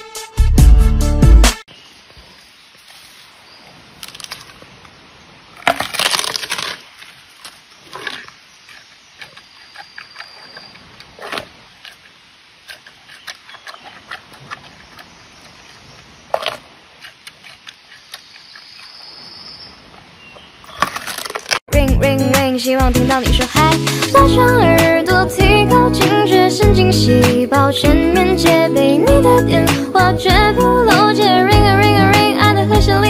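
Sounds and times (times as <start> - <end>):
bamboo cracking: 3.9 - 4.9, 5.6 - 15.1, 20.7 - 21.7.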